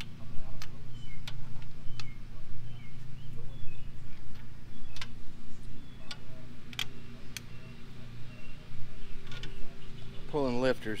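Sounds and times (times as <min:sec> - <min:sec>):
sharp metallic clicks: 0:00.0 - 0:02.2, 0:04.2 - 0:05.2, 0:06.0 - 0:07.6, 0:09.2 - 0:09.6
steady low hum: 0:00.0 - 0:11.0.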